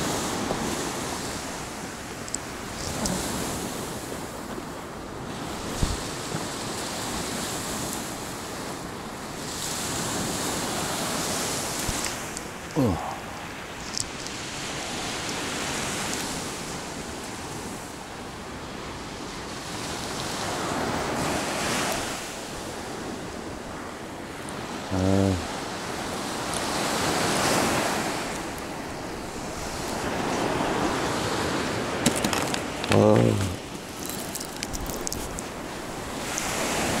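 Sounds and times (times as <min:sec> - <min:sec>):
sea waves washing ashore: 0:00.0 - 0:37.0
wind on microphone: 0:00.0 - 0:37.0
voiced grunt: 0:12.7 - 0:13.4, 0:24.9 - 0:25.4.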